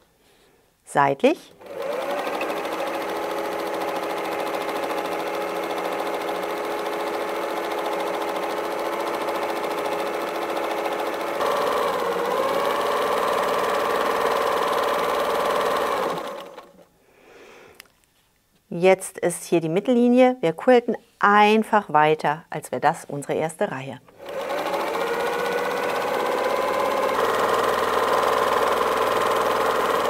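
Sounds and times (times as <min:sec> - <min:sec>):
sewing machine running: 0:01.6 - 0:16.8, 0:24.1 - 0:30.0.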